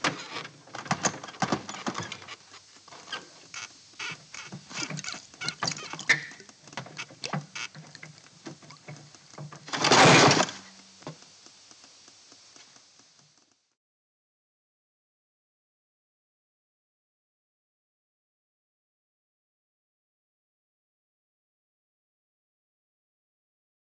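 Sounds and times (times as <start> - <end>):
metal creaking: 0.0 - 10.9
loud grinding scrape: 9.7 - 10.6
broken glass crunching: 9.7 - 10.7.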